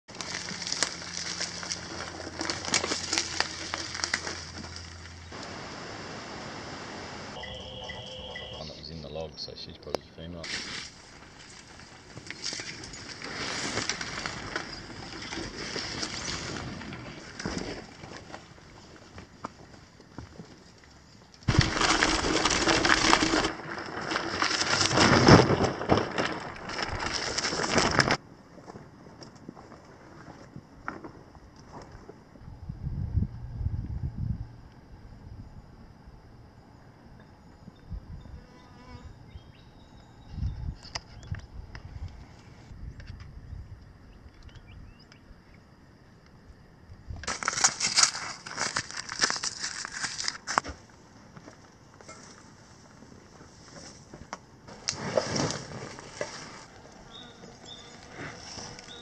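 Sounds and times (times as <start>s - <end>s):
bicycle tyres crackling over sticks: 0.1s - 5.6s, 10.4s - 28.8s, 47.2s - 59.0s
steady hiss: 5.3s - 7.4s
bike rattling and knocking: 21.5s - 28.2s.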